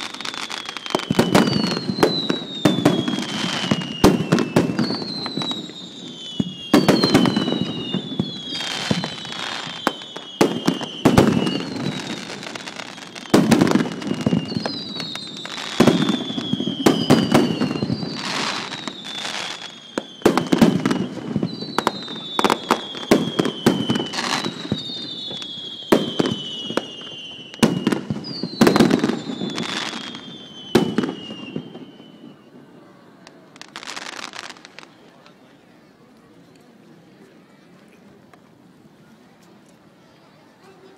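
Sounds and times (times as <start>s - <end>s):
firework bursting bangs: 0.0s - 32.1s
whistling firework shells: 0.0s - 35.6s.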